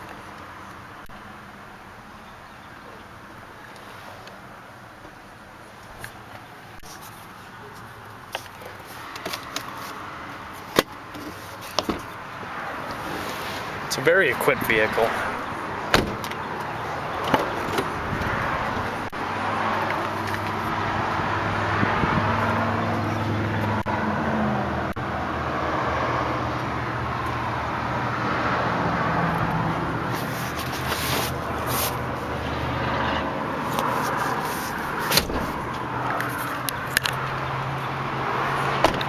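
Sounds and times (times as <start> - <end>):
vehicle hum: 0.0 - 39.0.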